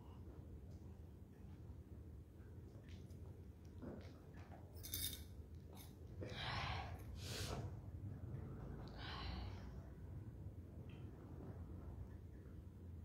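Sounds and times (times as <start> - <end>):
low background rumble: 0.0 - 13.0
woman breathing softly: 8.8 - 10.0.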